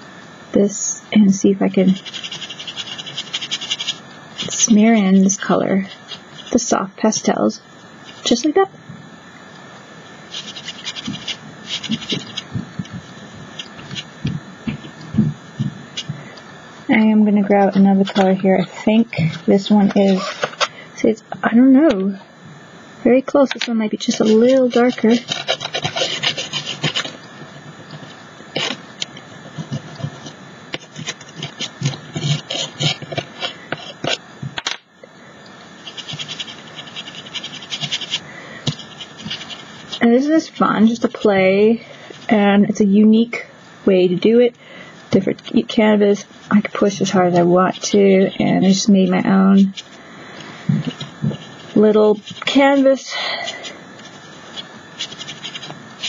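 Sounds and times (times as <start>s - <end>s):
pastel scratchy rubbing strokes: 1.8s - 6.6s, 10.3s - 12.5s, 13.4s - 14.1s, 17.6s - 20.7s, 24.0s - 27.2s, 28.6s - 28.8s, 29.5s - 34.2s, 35.8s - 41.5s, 50.9s - 53.1s, 54.0s - 56.0s.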